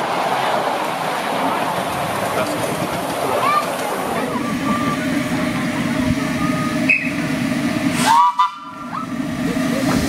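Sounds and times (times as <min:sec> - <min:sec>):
miniature train running on track: 0:00.0 - 0:10.0
locomotive whistle blast: 0:06.5 - 0:07.2, 0:08.0 - 0:09.1.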